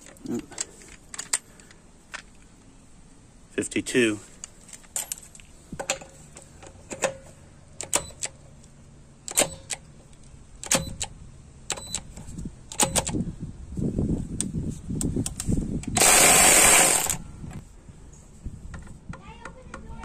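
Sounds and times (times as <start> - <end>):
motor straining under load: 15.3 - 17.6.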